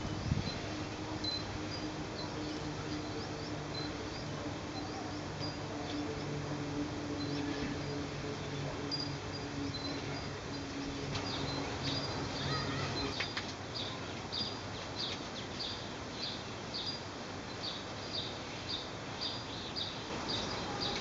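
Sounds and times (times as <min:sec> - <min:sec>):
low hum: 0:00.0 - 0:13.2
outdoor background noise: 0:00.0 - 0:21.0.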